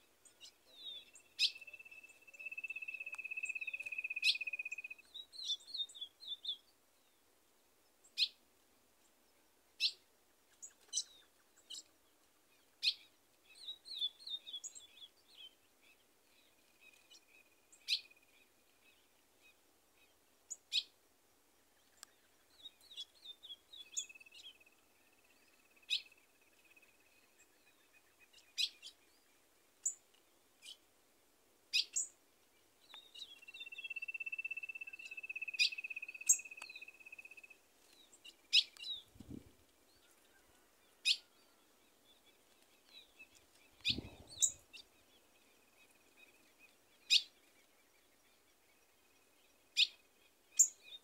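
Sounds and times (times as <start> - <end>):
bird trill: 0.4 - 6.6, 33.0 - 37.6, 42.9 - 44.9, 47.0 - 47.4.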